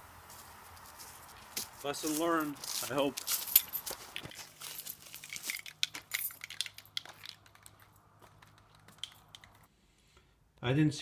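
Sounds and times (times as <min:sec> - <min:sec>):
footsteps crunching through dry leaves: 0:00.0 - 0:06.1.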